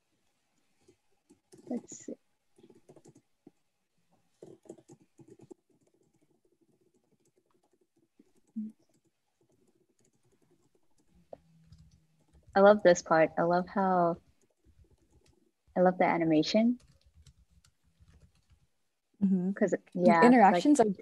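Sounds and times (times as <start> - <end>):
computer keyboard typing: 0.8 - 3.6, 4.4 - 12.8, 14.3 - 15.5, 16.6 - 18.7.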